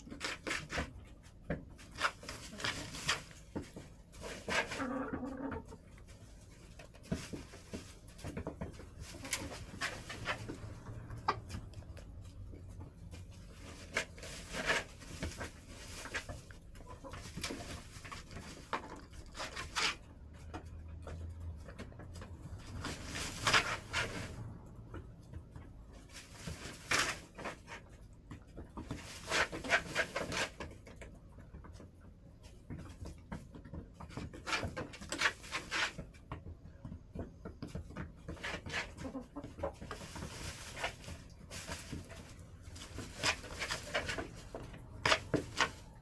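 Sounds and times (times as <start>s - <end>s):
hens scratching and pecking: 0.0s - 46.0s
hens clucking: 4.0s - 6.8s, 8.4s - 20.7s, 38.2s - 46.0s.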